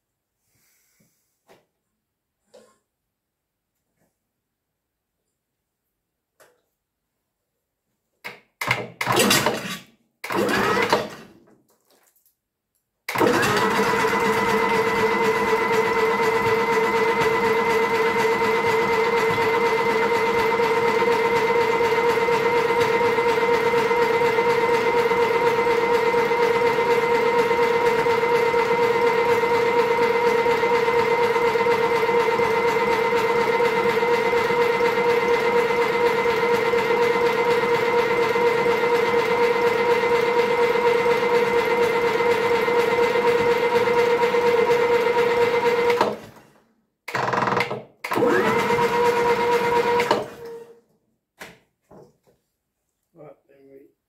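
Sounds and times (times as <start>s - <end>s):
starter motor cranking engine: 8.7s - 11.3s, 13.1s - 46.2s, 47.1s - 50.6s.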